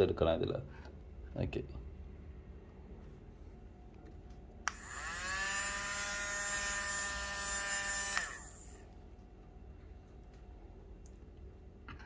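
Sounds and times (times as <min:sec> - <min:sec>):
small battery motor whirring: 0:04.7 - 0:08.9.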